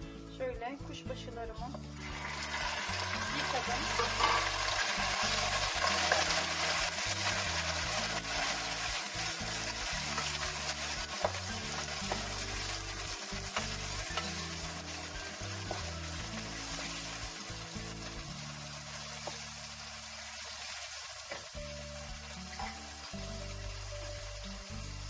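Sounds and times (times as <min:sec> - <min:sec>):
beef sizzling in fat: 0:01.9 - 0:25.0
wooden spoon stirring: 0:05.6 - 0:17.2.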